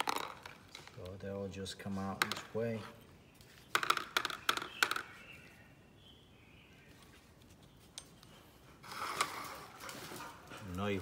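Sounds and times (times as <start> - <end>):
steel balls rattling into plastic lid: 0.0 - 1.0, 3.7 - 5.1.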